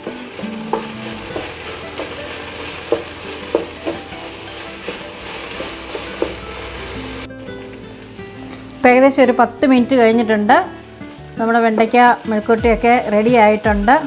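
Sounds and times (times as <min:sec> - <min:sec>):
wooden spatula scraping a pan: 0:00.0 - 0:07.7
okra sizzling in a pan: 0:00.0 - 0:14.0.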